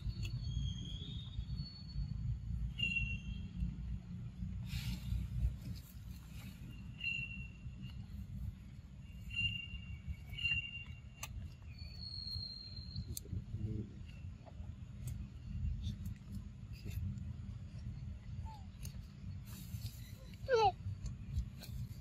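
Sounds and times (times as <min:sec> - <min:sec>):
steady low rumble: 0:00.0 - 0:22.0
short high chirps: 0:00.2 - 0:03.6, 0:06.6 - 0:08.1, 0:09.1 - 0:13.1.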